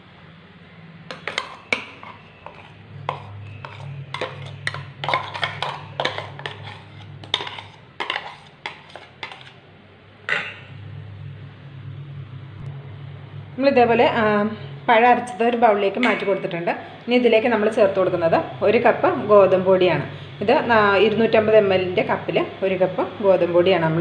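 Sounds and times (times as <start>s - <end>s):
metal spoon scraping jar: 1.1s - 9.6s.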